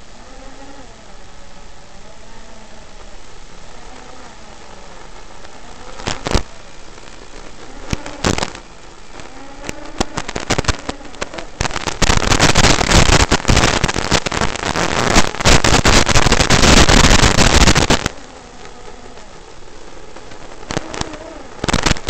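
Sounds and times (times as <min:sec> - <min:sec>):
drone motors whining: 0:00.0 - 0:06.8
crackling static hiss: 0:00.0 - 0:22.0.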